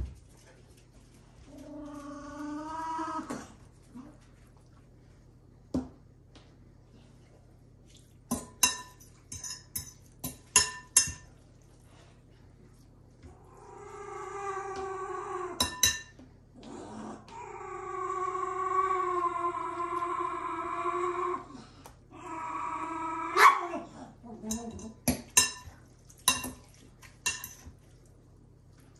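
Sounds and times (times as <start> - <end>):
utensil clinking against a dish: 8.3 - 11.4, 15.6 - 16.2, 24.5 - 28.0.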